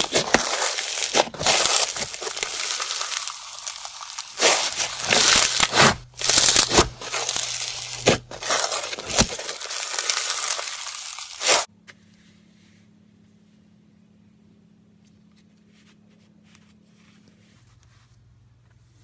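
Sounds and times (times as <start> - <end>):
foam bead slime crunching: 0.0 - 11.7.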